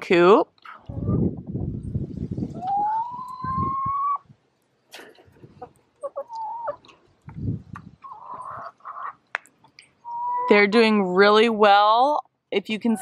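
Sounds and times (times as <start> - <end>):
chickens clucking: 0.7 - 1.4, 2.4 - 10.7.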